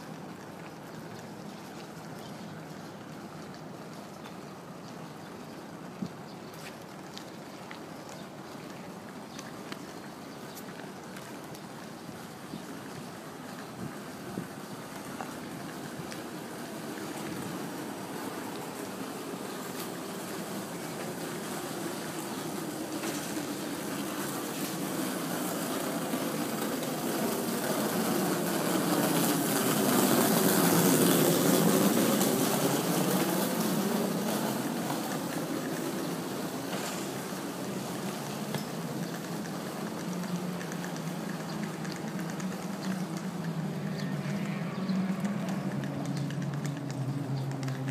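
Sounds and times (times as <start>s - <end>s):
vehicle passing on road: 12.7s - 47.9s.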